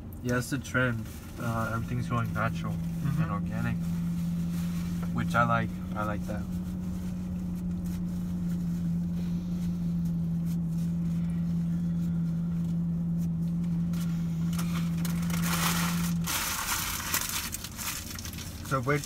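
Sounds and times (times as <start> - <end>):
low hum of car cabin: 0.0 - 19.0
paper wrappers rustling: 14.5 - 19.0.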